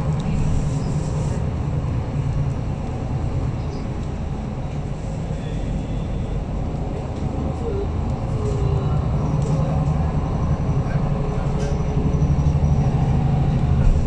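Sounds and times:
bus engine drone: 0:00.0 - 0:14.0
road and tyre noise: 0:00.0 - 0:14.0.

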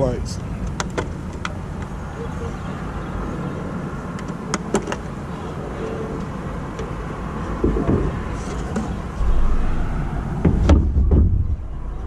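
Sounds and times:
low rumble: 0:09.2 - 0:12.0.

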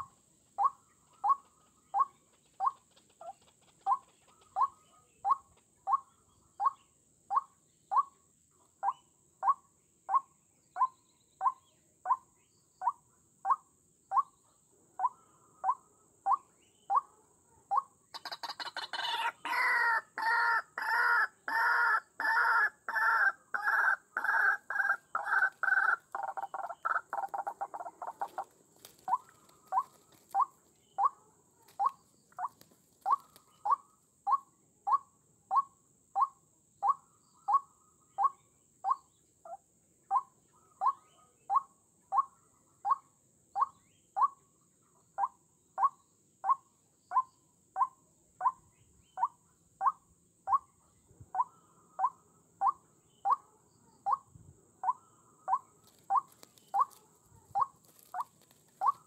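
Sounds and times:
waterhen calling: 0:18.2 - 0:33.8.

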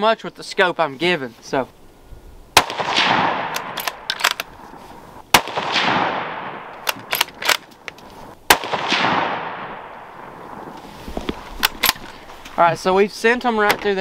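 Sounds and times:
rifle shots with rolling echo: 0:02.6 - 0:07.8, 0:08.4 - 0:10.8
rifle bolt clicking: 0:03.5 - 0:04.5, 0:06.7 - 0:08.1, 0:11.5 - 0:12.1.

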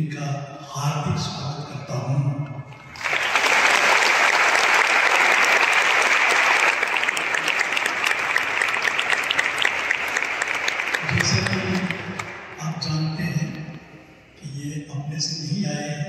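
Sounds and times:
audience applauding: 0:02.7 - 0:12.6.

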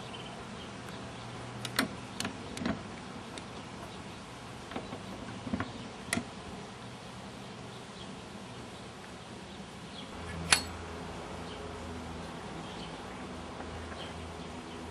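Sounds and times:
steady background hum: 0:00.0 - 0:14.9.

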